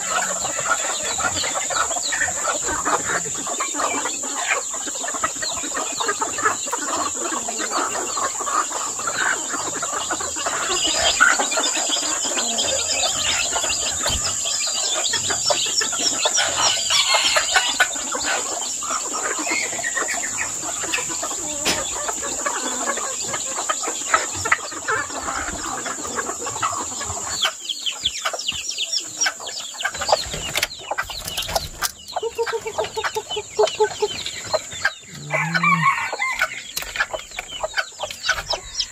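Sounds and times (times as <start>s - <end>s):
chickens clucking: 0.0s - 38.9s
rooster crowing: 16.6s - 17.9s, 35.1s - 36.6s.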